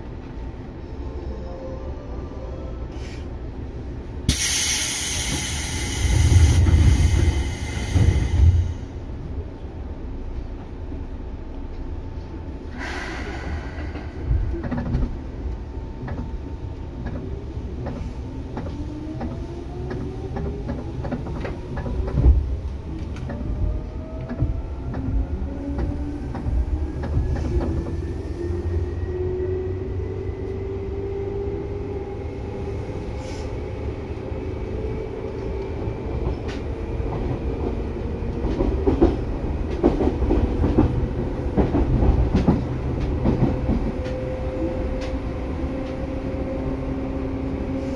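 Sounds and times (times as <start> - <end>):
train running rumble: 2.9 - 47.9.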